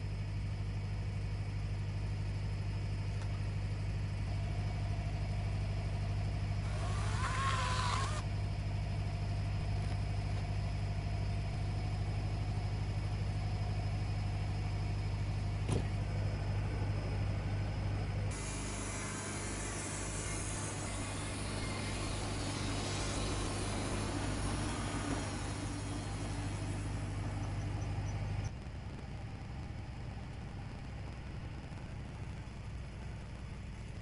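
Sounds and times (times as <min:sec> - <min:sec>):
sawmill engine idling: 0:00.0 - 0:34.0
chainsaw whine cutting bark: 0:06.4 - 0:08.3, 0:18.3 - 0:28.2.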